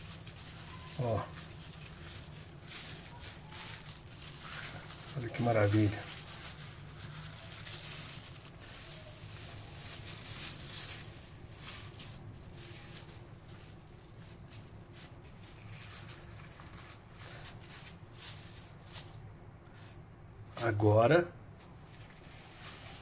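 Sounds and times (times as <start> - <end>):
cling film rustling and crinkling: 0.0 - 23.0.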